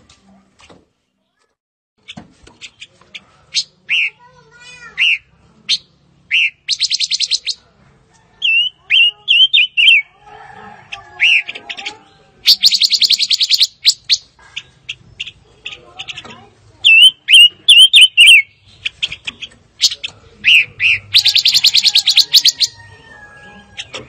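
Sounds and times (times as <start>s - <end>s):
fast rattling bird trills: 5.0s - 7.6s, 11.2s - 22.8s.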